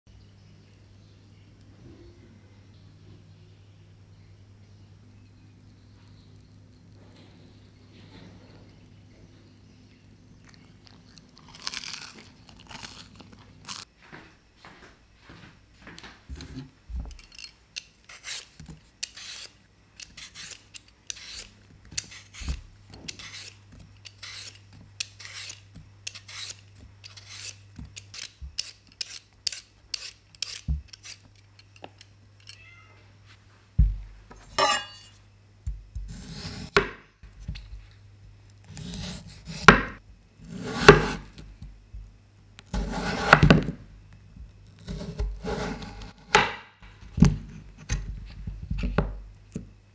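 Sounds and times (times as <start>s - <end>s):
peeler scraping potato: 16.3s - 32.6s, 36.0s - 36.8s, 38.7s - 39.8s, 40.4s - 41.4s, 42.7s - 43.7s, 44.7s - 46.4s
knife cutting on wooden board: 36.0s - 36.8s, 38.7s - 39.9s, 40.5s - 41.3s, 42.7s - 43.7s, 44.8s - 46.5s.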